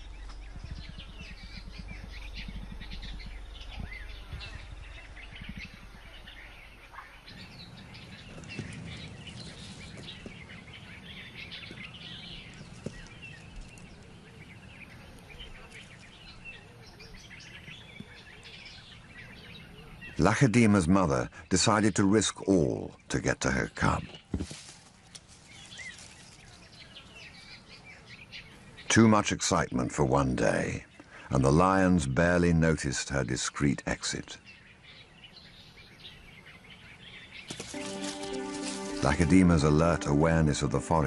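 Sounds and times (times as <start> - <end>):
low rumble: 0.0 - 12.5
small birds chirping: 0.0 - 41.0.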